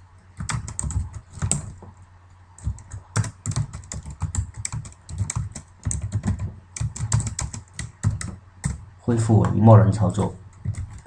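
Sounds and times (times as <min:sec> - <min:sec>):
computer keyboard typing: 0:00.4 - 0:01.8, 0:02.6 - 0:08.8, 0:10.1 - 0:11.0.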